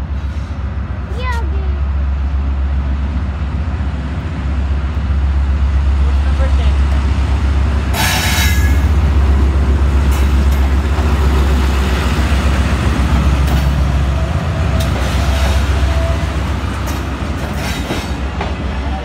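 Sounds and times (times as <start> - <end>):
diesel locomotive engine rumble: 0.0 - 19.0
passenger coaches rolling: 0.0 - 19.0
sharp clicks of rolling train: 4.1 - 19.0.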